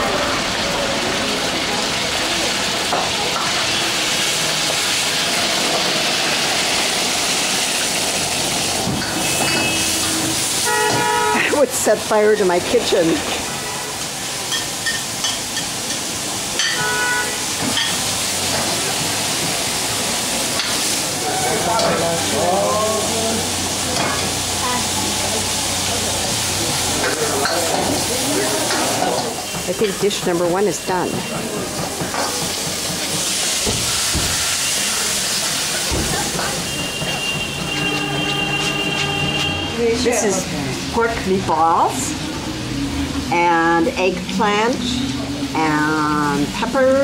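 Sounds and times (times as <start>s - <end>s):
wok sizzling: 0.0s - 47.0s.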